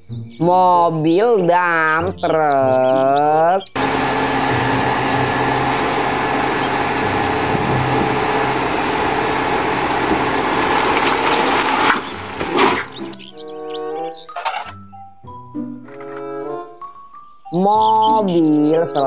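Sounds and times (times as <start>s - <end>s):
truck engine running: 3.8s - 13.2s
knocks and clatters: 10.0s - 13.1s, 14.3s - 14.8s.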